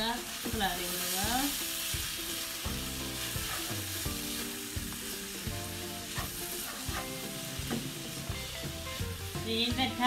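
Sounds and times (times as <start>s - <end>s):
food sizzling in a wok: 0.0s - 10.0s
spatula scraping and knocking pan: 2.8s - 8.4s.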